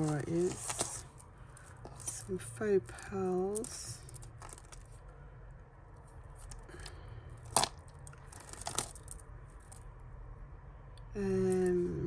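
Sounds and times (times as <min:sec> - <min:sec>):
beads clicking: 0:03.2 - 0:05.1, 0:06.0 - 0:09.9.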